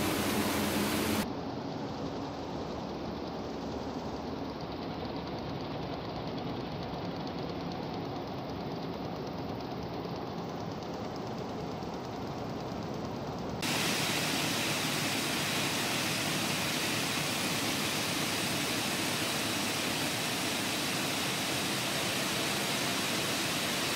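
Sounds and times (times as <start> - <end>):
textile machinery hissing: 0.0 - 1.2, 13.6 - 23.9.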